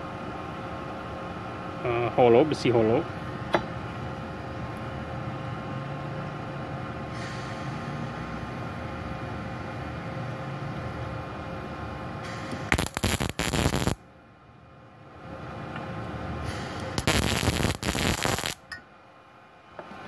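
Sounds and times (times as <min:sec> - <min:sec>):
steady hum: 0:08.5 - 0:15.6, 0:16.4 - 0:19.6
welding arc crackling: 0:12.6 - 0:14.0, 0:16.8 - 0:18.7.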